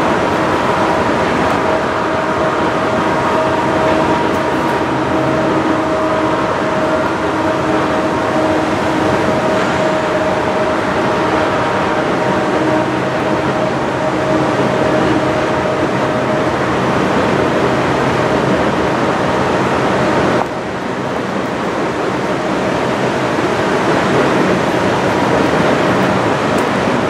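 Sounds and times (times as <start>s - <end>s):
train cars rolling on rails: 0.0s - 27.0s.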